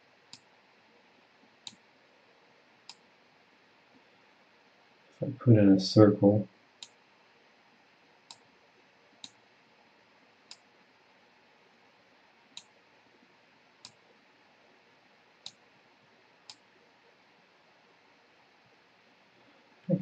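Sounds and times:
computer mouse clicks: 9.2s - 9.4s, 13.8s - 14.0s.

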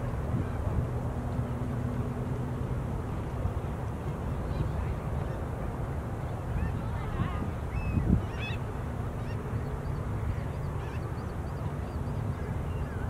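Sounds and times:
faint bird calls: 6.6s - 8.6s.

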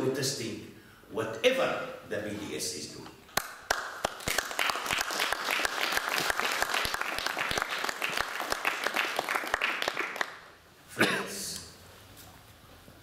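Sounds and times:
audience applauding: 3.4s - 10.5s.

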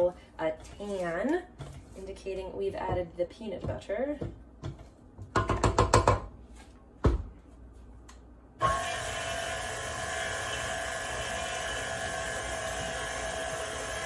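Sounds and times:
stand mixer motor whine: 8.6s - 14.0s.

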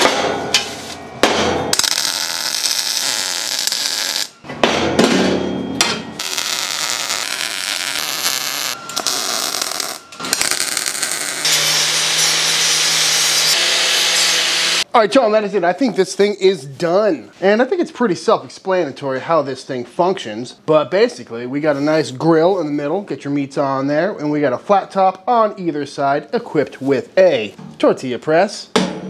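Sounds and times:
steady harsh noise: 0.0s - 15.0s
angle grinder grinding steel: 1.8s - 4.4s, 6.2s - 14.8s.

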